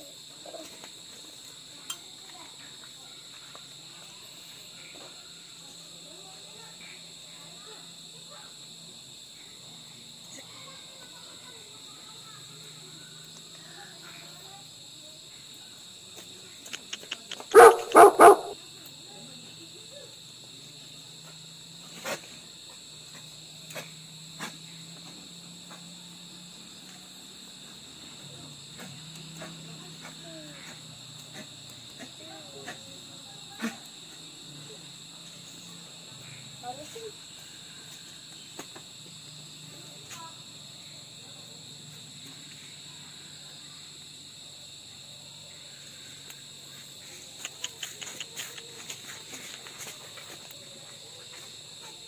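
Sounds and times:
crickets chirring: 0:00.0 - 0:52.0
rapid sharp ticks: 0:47.2 - 0:49.0.

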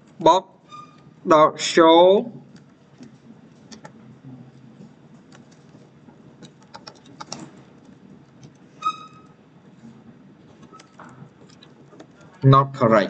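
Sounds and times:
keyboard typing: 0:06.4 - 0:07.6
high-pitched tone: 0:08.8 - 0:09.3.

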